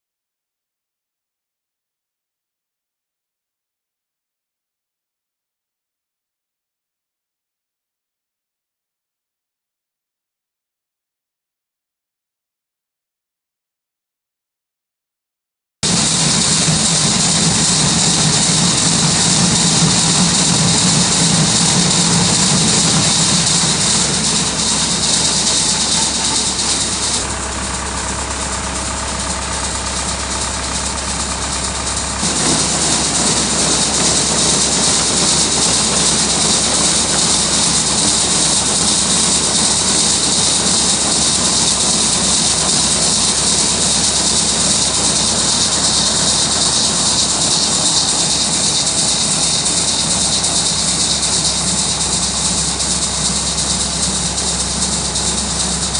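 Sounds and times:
tractor engine running: 15.8 - 55.9
seed pouring hiss: 15.9 - 55.9.

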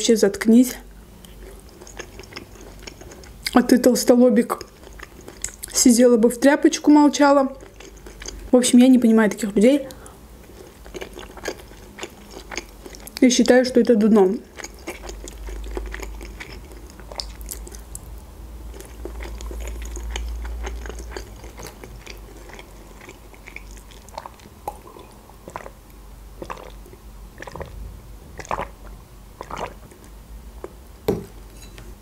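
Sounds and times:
chewing food: 1.2 - 5.8, 7.3 - 8.5, 9.8 - 31.4
wet mouth clicks: 4.5 - 5.8, 26.4 - 26.8, 27.4 - 27.7
swallowing juice: 18.8 - 25.8, 26.4 - 30.8.

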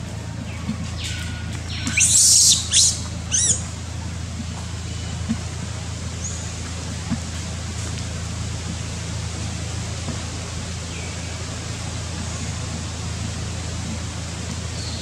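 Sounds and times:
steady low hum: 0.0 - 15.0
monkey squeaking: 1.7 - 3.7.

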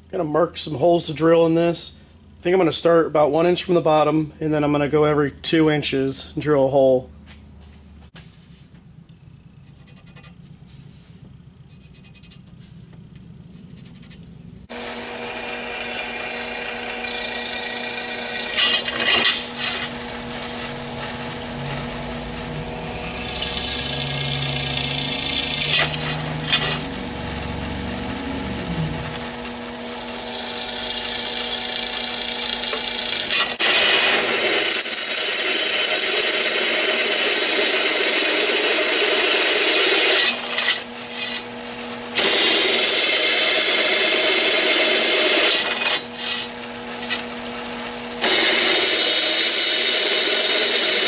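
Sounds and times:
drill bit grinding through steel: 14.7 - 47.3, 48.2 - 51.0
drill press motor hum: 14.7 - 51.0.

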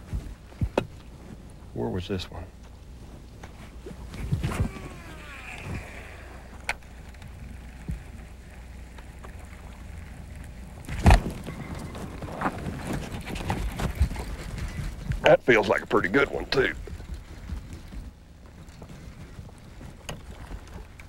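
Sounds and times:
steady low rumble: 0.0 - 21.0.

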